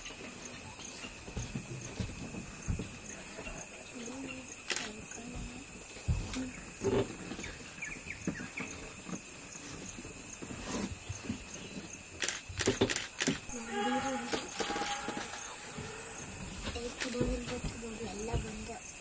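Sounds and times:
insects droning: 0.0 - 19.0
sharp clicks: 4.7 - 5.0, 12.2 - 13.6.

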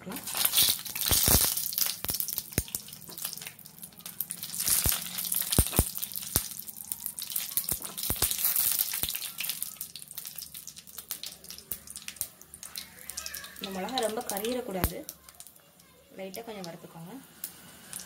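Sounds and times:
chillies sizzling in hot oil: 0.0 - 18.0.

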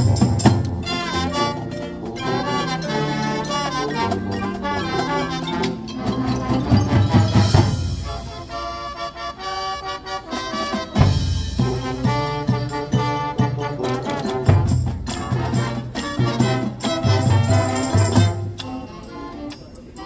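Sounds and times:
marimbas and drums: 0.0 - 9.0, 10.5 - 20.0
brass chords: 0.0 - 19.6.

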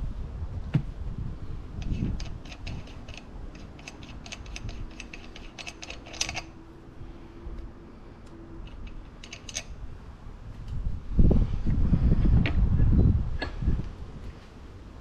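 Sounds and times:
small metallic clicks: 1.8 - 6.6, 8.2 - 9.8.

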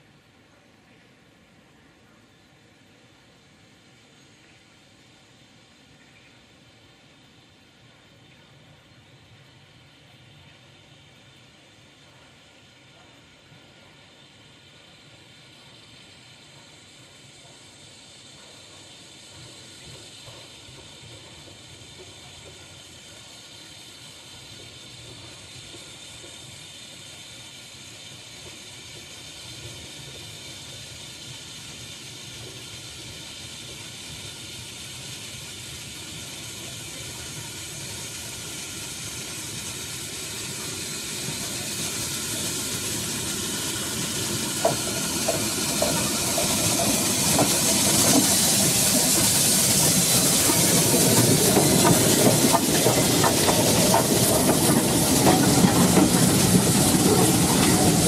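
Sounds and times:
hiss of steam: 0.0 - 58.0
steam locomotive approaching: 0.0 - 58.0.

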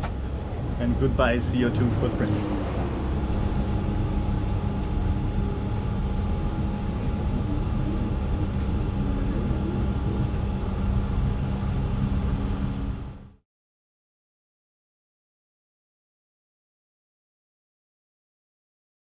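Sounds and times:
fuel pump humming: 0.0 - 13.4.

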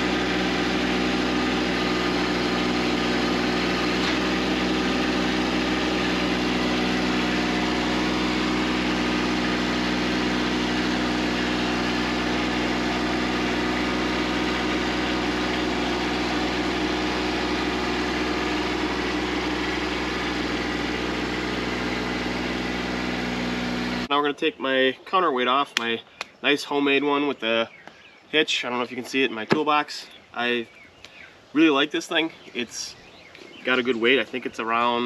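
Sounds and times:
tractor diesel engine idling: 0.0 - 24.1.

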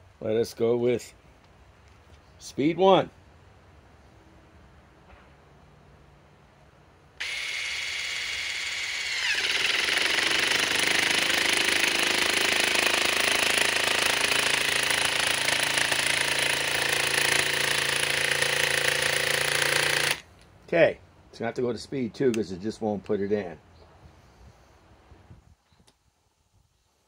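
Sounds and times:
impact driver pulsing: 7.2 - 20.2.

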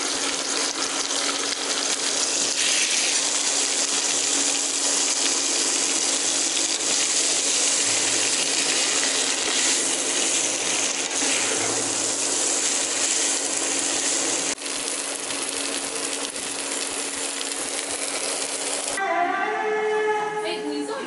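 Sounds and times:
noodles sizzling in a pan: 0.0 - 19.0
spatula scraping a pan: 8.6 - 13.4
voice or music: 19.0 - 21.0.

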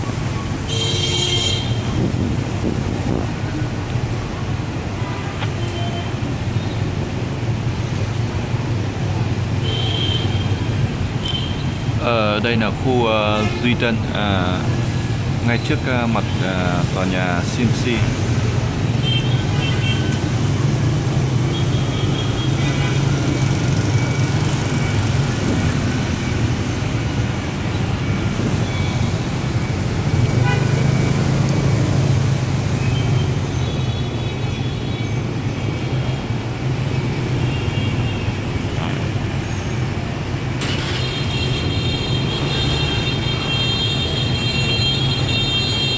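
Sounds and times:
traffic engine and tyre rumble: 0.0 - 45.9
vehicle horns tooting: 0.7 - 2.0, 18.9 - 20.2, 30.3 - 30.9, 40.6 - 45.9.

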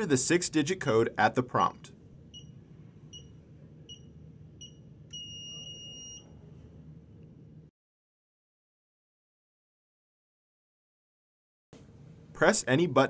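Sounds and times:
long beep: 4.6 - 6.4.

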